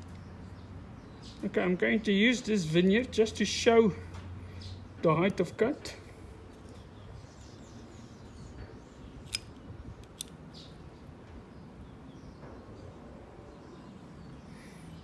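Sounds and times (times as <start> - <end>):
metallic caliper clicks: 9.2 - 10.7.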